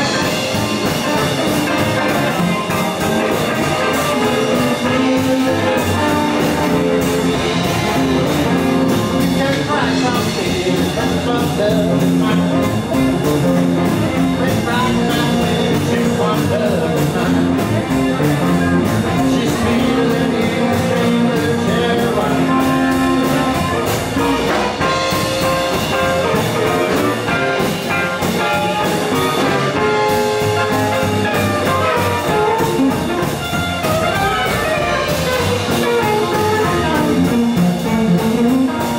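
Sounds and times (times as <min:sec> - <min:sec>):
drum kit: 0:00.0 - 0:38.9
electric guitar: 0:00.0 - 0:38.9
upright double bass: 0:00.0 - 0:38.9
amplified harmonica wailing: 0:22.2 - 0:37.2.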